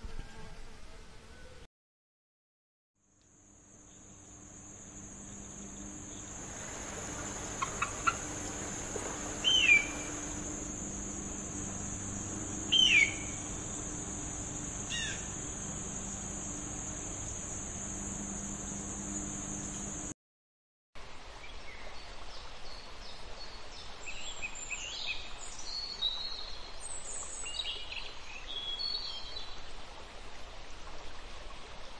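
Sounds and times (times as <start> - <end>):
high insect buzz: 3.1 - 20.2
bird of prey screaming calls: 9.4 - 10.4, 12.7 - 13.4, 14.9 - 15.3.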